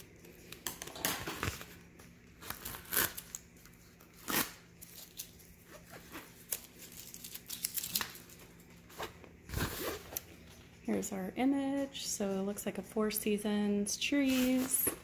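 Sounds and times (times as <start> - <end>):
plastic film crinkling: 0.3 - 8.9.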